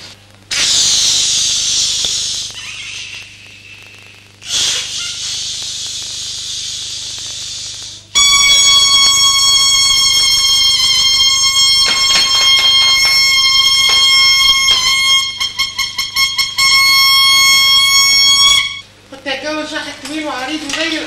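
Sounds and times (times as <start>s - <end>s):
air hissing out of a balloon: 0.0s - 11.8s.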